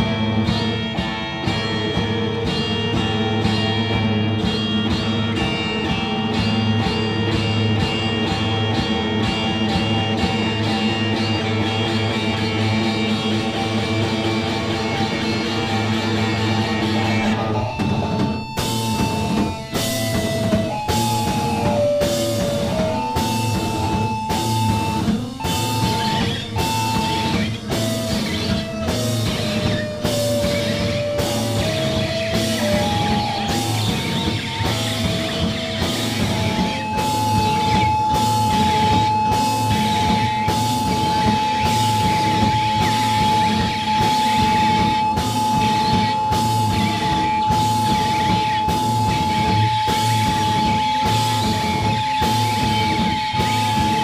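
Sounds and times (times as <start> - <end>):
electric guitar: 0.0 - 54.0
heavy drum hits: 0.0 - 54.0
lead melody of held notes: 0.0 - 54.0.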